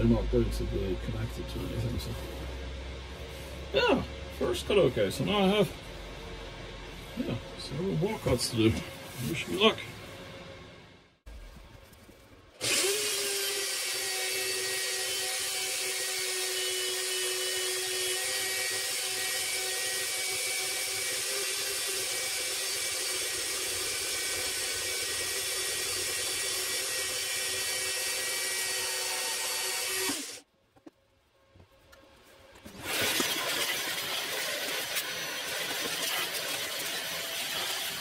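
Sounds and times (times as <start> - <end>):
band saw cutting steel: 12.6 - 30.5.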